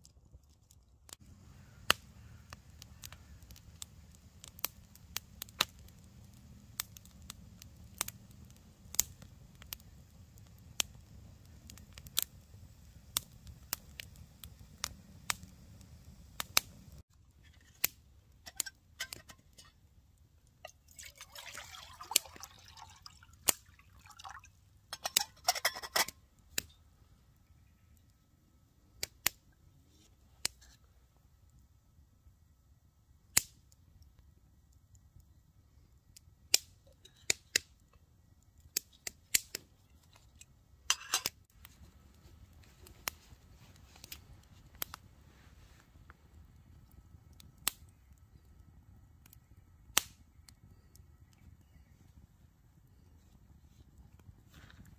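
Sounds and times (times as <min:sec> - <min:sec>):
campfire crackling: 0:00.0 - 0:54.9
liquid pouring into mug: 0:20.9 - 0:24.5.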